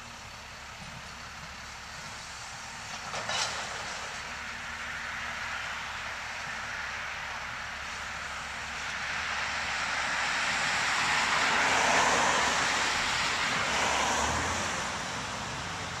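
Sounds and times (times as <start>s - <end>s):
diesel engine running: 0.0s - 16.0s
car driving past: 9.0s - 16.0s.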